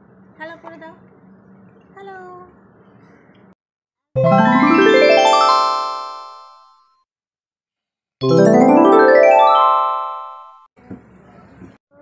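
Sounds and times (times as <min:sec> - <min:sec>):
rising run of ringing notes: 0:04.2 - 0:06.8, 0:08.2 - 0:10.7.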